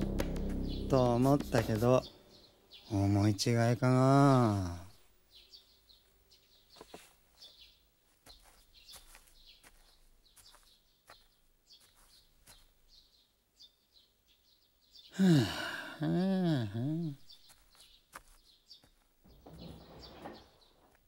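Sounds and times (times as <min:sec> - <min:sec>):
loud sound sliding in pitch: 0:00.0 - 0:02.1
small birds chirping: 0:00.0 - 0:21.0.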